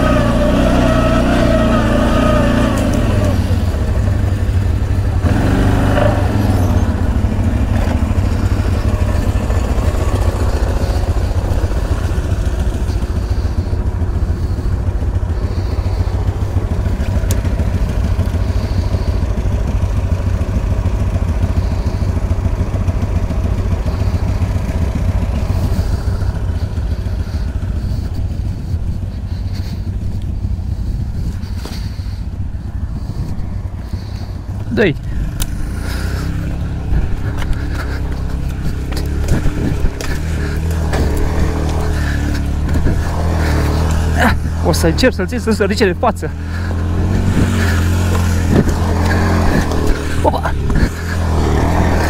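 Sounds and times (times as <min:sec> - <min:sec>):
engine running with deep drone: 0:00.0 - 0:52.0.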